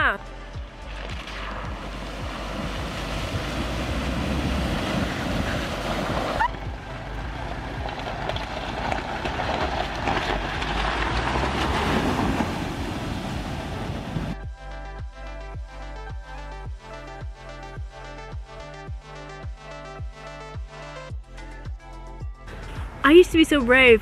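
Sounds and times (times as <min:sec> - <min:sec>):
truck engine running: 0:00.0 - 0:19.3
water splashing: 0:00.9 - 0:14.4.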